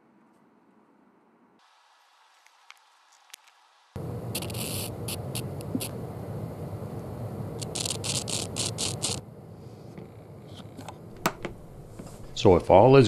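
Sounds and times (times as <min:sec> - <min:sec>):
earbud static crackling: 0:02.2 - 0:06.0, 0:07.5 - 0:09.2, 0:09.9 - 0:13.0
low buzz: 0:04.0 - 0:13.0.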